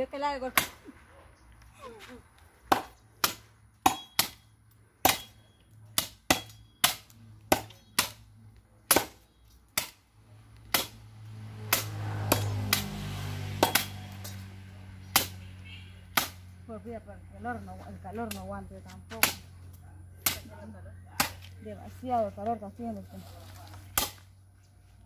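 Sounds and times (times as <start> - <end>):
machete chopping wood: 2.6 - 8.2, 8.8 - 10.0, 10.6 - 11.0, 11.6 - 14.4, 15.0 - 15.4, 16.1 - 16.5, 19.1 - 19.5, 20.2 - 20.6, 21.2 - 21.5, 23.8 - 24.3.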